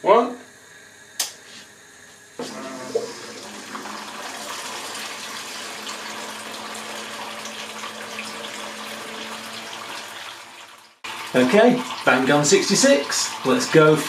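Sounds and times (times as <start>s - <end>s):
small pump humming: 0.6s - 14.0s.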